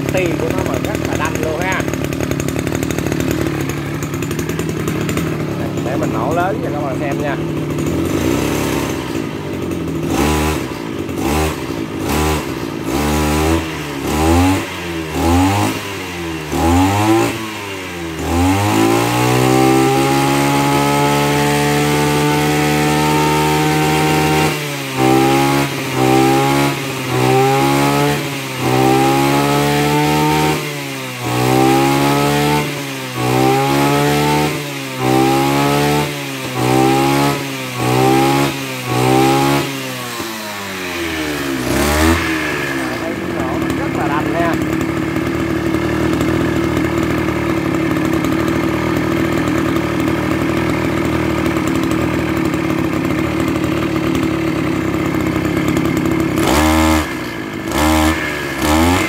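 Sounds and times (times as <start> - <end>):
brush cutter engine revving: 0.0 - 59.0.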